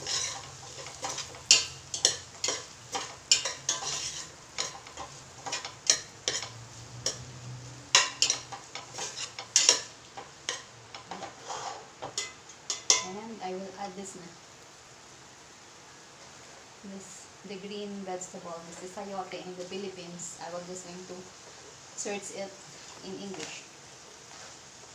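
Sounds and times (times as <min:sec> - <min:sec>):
utensil scraping a metal pot: 0:00.0 - 0:07.2, 0:08.0 - 0:09.9, 0:11.1 - 0:12.3
vegetables sizzling: 0:00.0 - 0:24.9.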